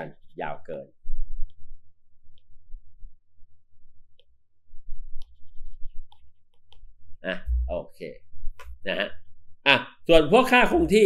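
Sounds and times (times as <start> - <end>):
low rumble: 7.5 - 7.8.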